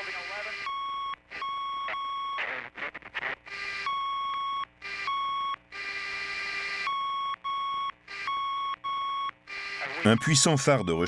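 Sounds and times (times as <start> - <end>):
radio static hiss: 0.0 - 0.6, 1.3 - 3.8, 9.6 - 10.8.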